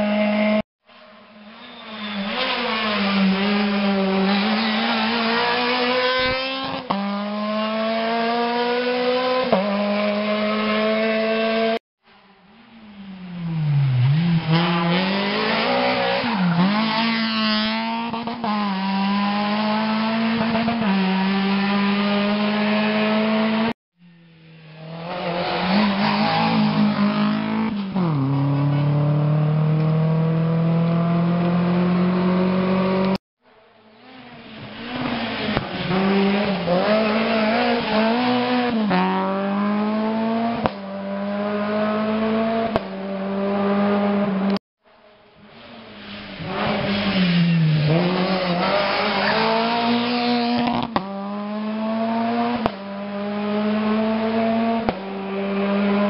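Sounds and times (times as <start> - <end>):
rally car engines revving: 1.5 - 11.8, 12.6 - 33.2, 33.8 - 44.6, 45.4 - 56.0.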